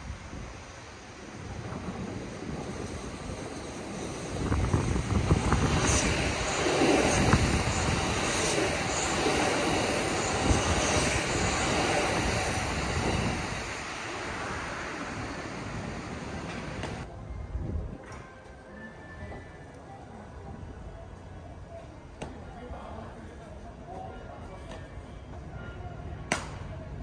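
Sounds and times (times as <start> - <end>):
train wheels rumbling on rail: 0.0 - 17.1.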